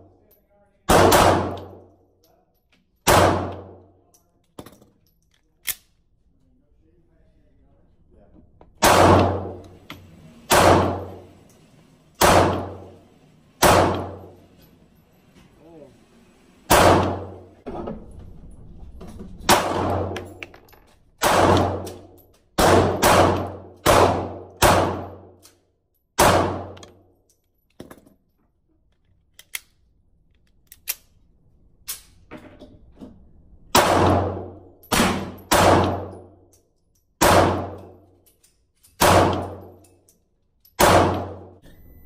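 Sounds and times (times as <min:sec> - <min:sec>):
pistol shots echoing: 0:00.9 - 0:01.8, 0:03.1 - 0:03.8, 0:08.8 - 0:09.7, 0:10.5 - 0:11.3, 0:12.2 - 0:13.0, 0:13.6 - 0:14.4, 0:16.7 - 0:17.5, 0:19.5 - 0:20.2, 0:21.2 - 0:22.0, 0:22.6 - 0:25.3, 0:26.2 - 0:26.8, 0:33.7 - 0:36.2, 0:37.2 - 0:37.9, 0:39.0 - 0:39.6, 0:40.8 - 0:41.6
pistol handling clicks: 0:05.2 - 0:06.0, 0:28.9 - 0:31.2.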